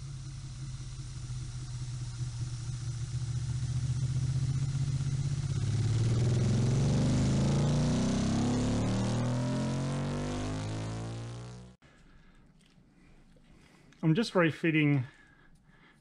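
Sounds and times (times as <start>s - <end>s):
motorcycle engine revving: 0.0s - 11.8s.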